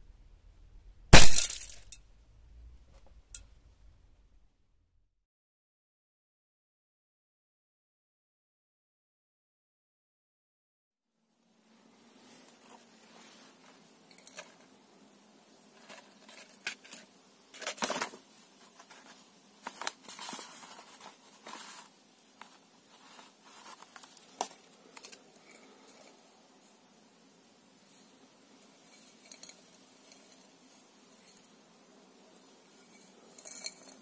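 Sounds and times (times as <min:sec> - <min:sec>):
paper rustling and crinkling: 0:15.8 - 0:25.2.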